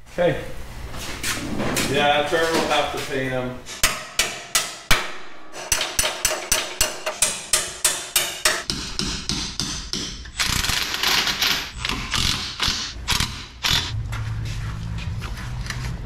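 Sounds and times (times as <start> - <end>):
hammer striking steel: 3.8 - 10.4.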